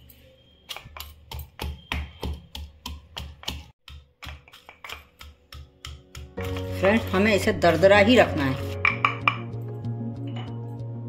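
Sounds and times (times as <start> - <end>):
pestle pounding in wooden mortar: 0.7 - 9.5.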